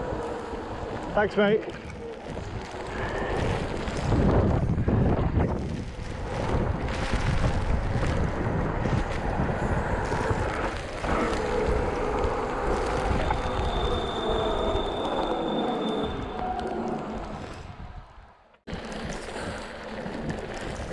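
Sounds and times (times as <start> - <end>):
bike tyres rolling on wet tarmac: 0.0 - 17.7, 18.7 - 20.9
wind buffeting microphone: 0.0 - 20.9
thin high whine: 12.5 - 17.6.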